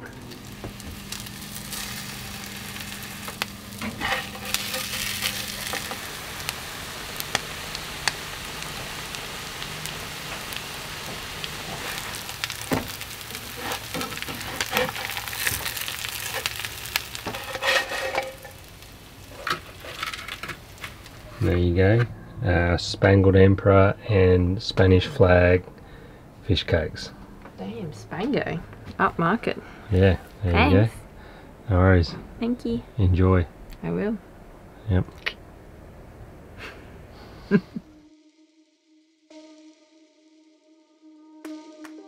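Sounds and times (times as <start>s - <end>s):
fish cakes sizzling in a frying pan: 0.0s - 21.2s
spatula scraping a pan: 2.4s - 6.1s, 11.6s - 21.4s.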